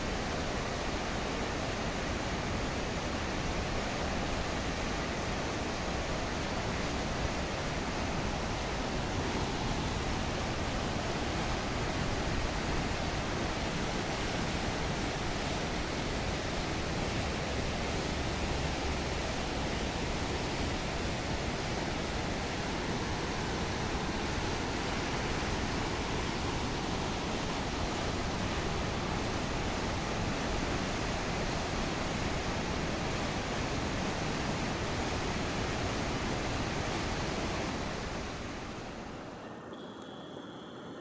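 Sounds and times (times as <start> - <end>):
roar of rushing river water: 0.0 - 39.4.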